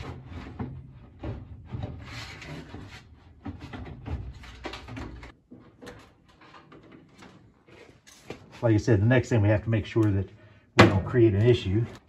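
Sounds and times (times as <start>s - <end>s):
sheet metal scraping: 0.0s - 5.1s
metal knocks and clunks: 0.0s - 7.3s.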